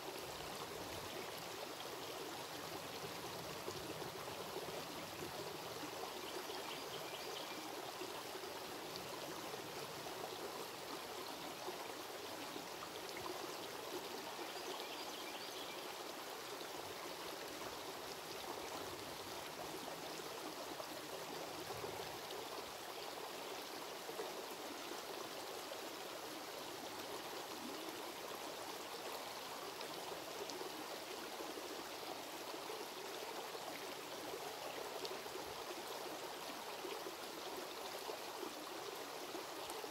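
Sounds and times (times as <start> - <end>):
creek water rushing: 0.0 - 39.9.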